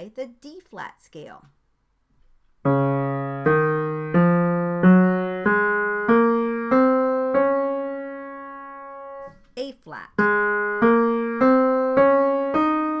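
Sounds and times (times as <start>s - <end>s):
piano playing ascending scale: 2.6s - 9.2s, 10.2s - 13.0s.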